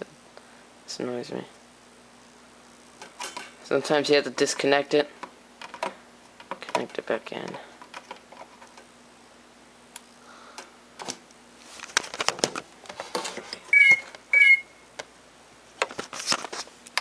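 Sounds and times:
faint steady hum: 0.0s - 17.0s
short electronic beeps: 13.7s - 14.8s.

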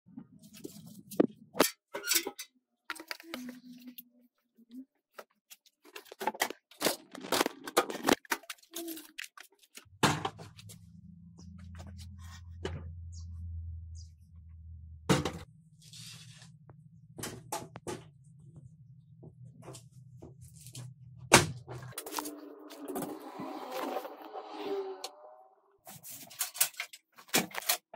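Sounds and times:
low steady hum: 9.9s - 24.9s.

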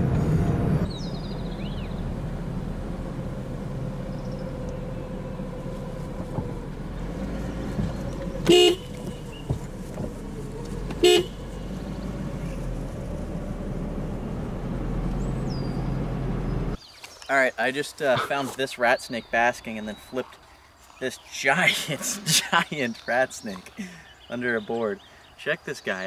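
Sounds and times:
car running hum: 0.0s - 16.8s
car horn toots: 8.4s - 9.6s, 11.0s - 11.7s.

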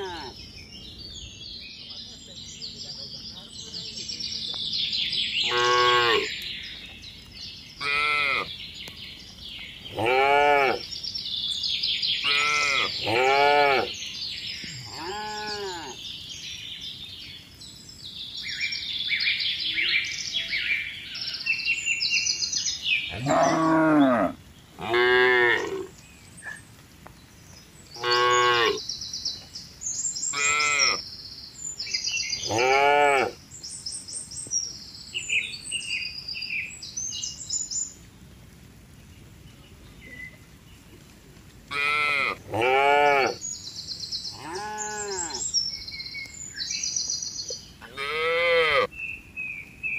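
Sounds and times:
birds chirping faintly: 0.0s - 49.9s
cattle mooing: 23.1s - 25.9s, 47.9s - 48.9s.

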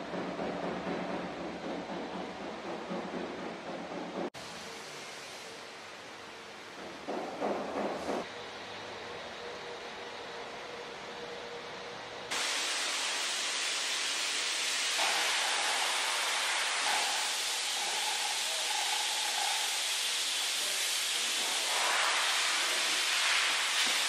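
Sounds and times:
steady hiss: 1.9s - 8.3s, 12.3s - 24.0s.

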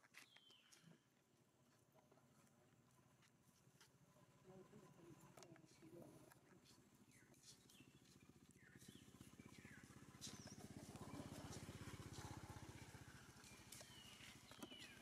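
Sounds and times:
low rapid throbbing hum: 7.1s - 13.6s.

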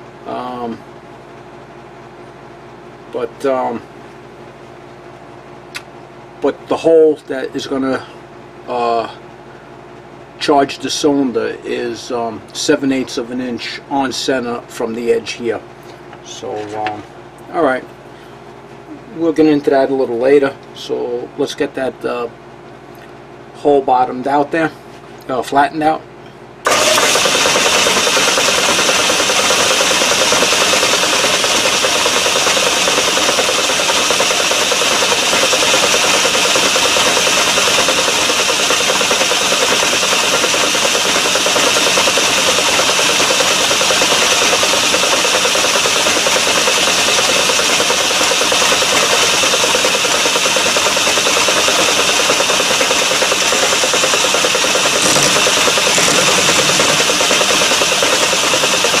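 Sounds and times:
metal lathe running: 26.7s - 59.0s.

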